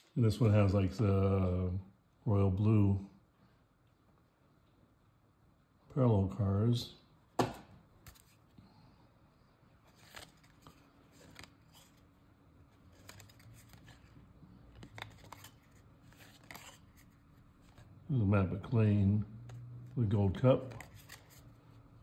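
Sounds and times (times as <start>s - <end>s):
cards clicking and snapping: 7.4s - 8.4s, 9.9s - 12.0s, 12.8s - 17.9s, 20.6s - 21.5s
soft card rustling: 7.9s - 8.6s, 9.7s - 22.0s.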